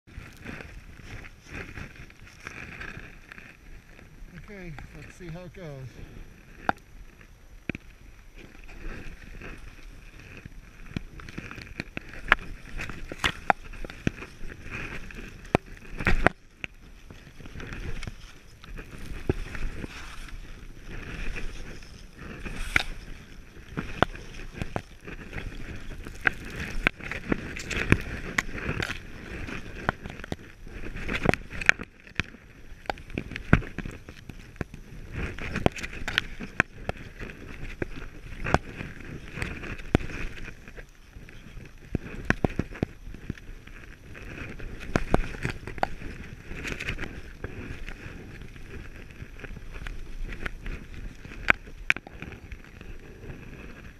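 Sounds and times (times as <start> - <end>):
skis hissing through snow: 0.2 - 6.5, 7.9 - 29.9.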